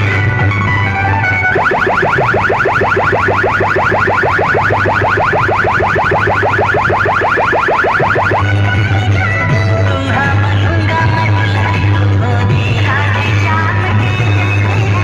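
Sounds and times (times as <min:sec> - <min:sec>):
electronic siren chirping: 0:01.5 - 0:08.5.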